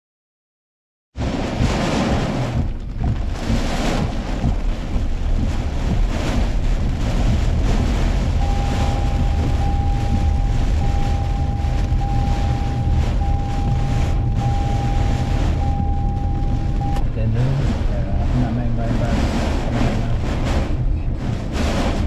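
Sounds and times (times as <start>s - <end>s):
heavy rain on car: 1.2s - 22.0s
wind rumble on microphone: 1.2s - 22.0s
electronic beep: 8.4s - 17.1s.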